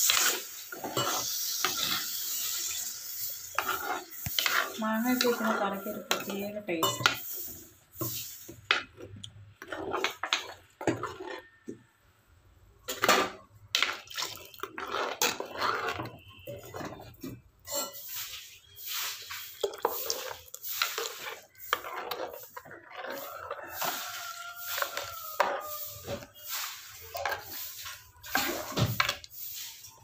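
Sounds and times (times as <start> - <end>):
metal spoon scraping a pot: 0.0 - 11.8, 12.9 - 30.0
liquid pouring into a pot: 13.8 - 16.8.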